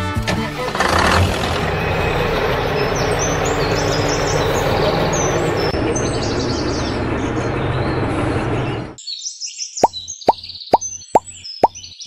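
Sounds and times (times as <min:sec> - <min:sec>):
truck engine running: 0:00.4 - 0:08.8
birds chirping: 0:01.7 - 0:12.0.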